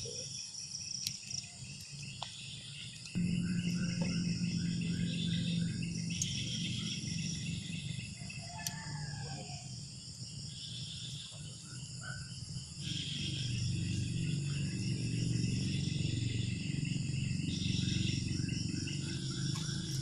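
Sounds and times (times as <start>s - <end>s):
crickets and insects trilling: 0.0s - 20.0s
low steady hum: 0.7s - 11.2s, 12.7s - 20.0s.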